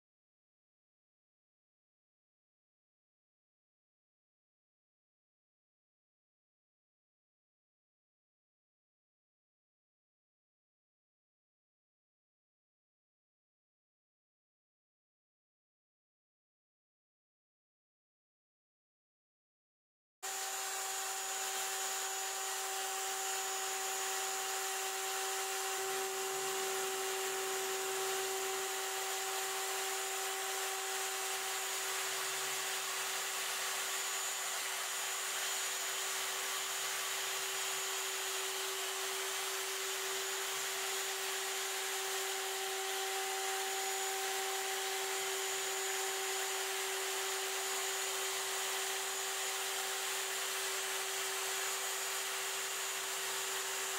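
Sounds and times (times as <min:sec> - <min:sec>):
router spindle whine: 0:20.2 - 0:53.9
bit cutting foam hiss: 0:20.3 - 0:53.9.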